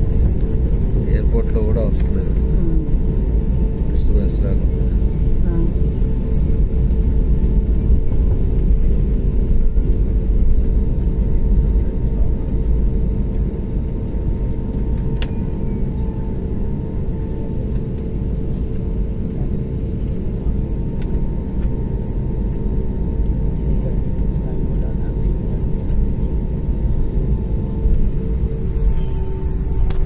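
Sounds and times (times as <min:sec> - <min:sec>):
jet engines rumbling: 0:00.0 - 0:30.0
steady hum: 0:00.0 - 0:30.0.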